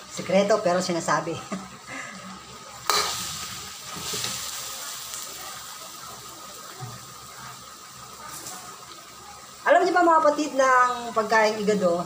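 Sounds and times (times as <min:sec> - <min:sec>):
food sizzling in a wok: 0:00.0 - 0:12.0
spatula stirring a pan: 0:02.5 - 0:09.0.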